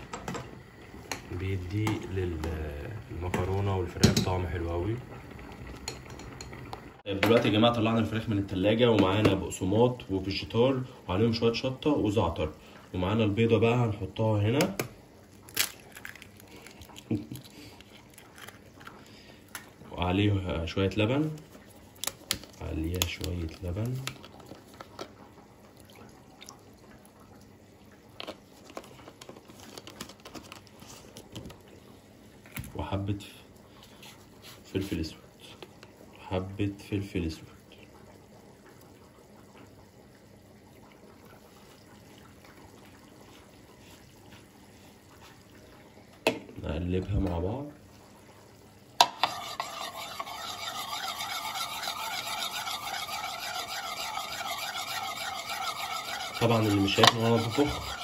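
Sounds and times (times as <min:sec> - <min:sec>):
milk trickling and dripping: 0:10.2 - 0:32.6, 0:37.4 - 0:49.0
metal spoon scraping a plate: 0:49.2 - 0:58.0.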